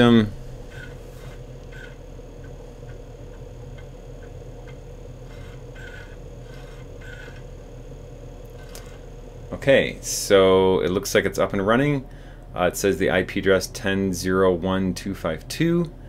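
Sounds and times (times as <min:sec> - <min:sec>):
disk drive head chirps and ticks: 0:00.0 - 0:07.8, 0:08.4 - 0:09.1
floppy disk drive whir: 0:00.0 - 0:12.6.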